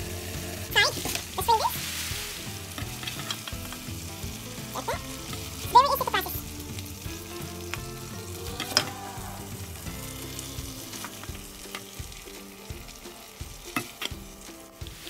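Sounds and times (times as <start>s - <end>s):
food sizzling in a frying pan: 0.0s - 15.0s
spoon scraping a pan: 1.8s - 3.8s.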